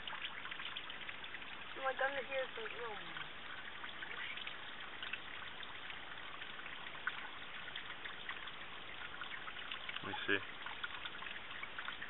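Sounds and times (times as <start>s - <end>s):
water dripping onto rock: 0.0s - 12.0s.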